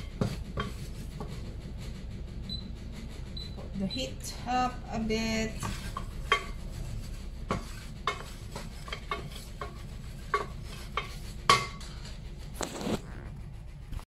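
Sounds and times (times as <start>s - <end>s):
wooden spoon knocking pan: 5.5s - 6.6s, 7.5s - 11.8s.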